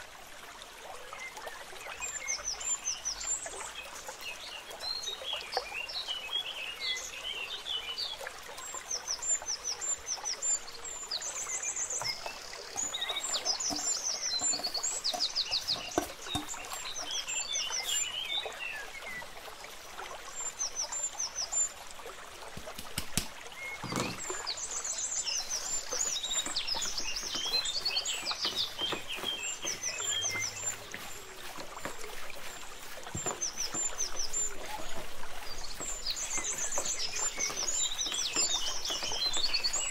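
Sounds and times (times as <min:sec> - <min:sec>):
small birds chirping: 0:00.3 - 0:39.9.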